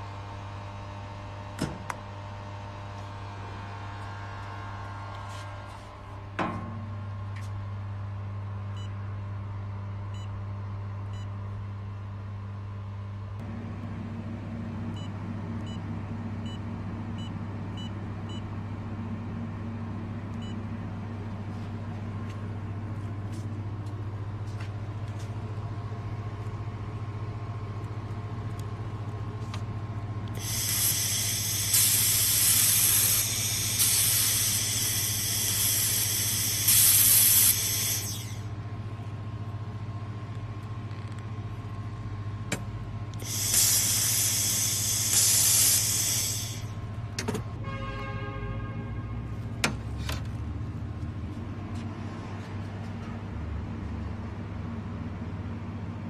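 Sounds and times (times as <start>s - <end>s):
welding machine humming: 13.4s - 47.2s
shielding gas hissing: 30.3s - 38.4s, 43.2s - 46.8s.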